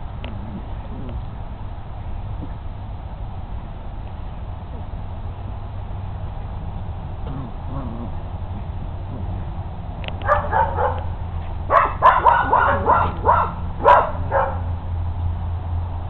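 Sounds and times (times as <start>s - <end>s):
puppies barking in high yaps: 10.2s - 14.8s.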